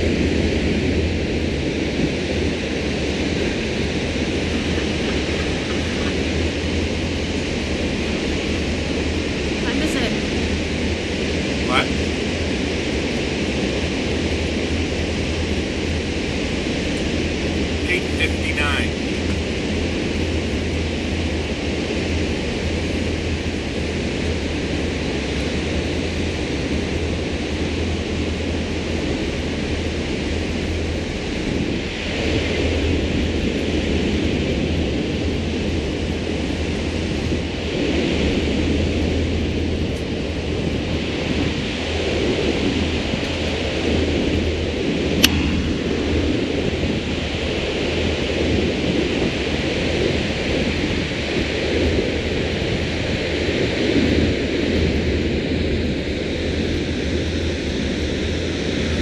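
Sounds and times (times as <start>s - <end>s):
boat engine droning: 0.0s - 59.0s
wind and water rushing: 0.0s - 59.0s
sharp click: 45.2s - 45.4s.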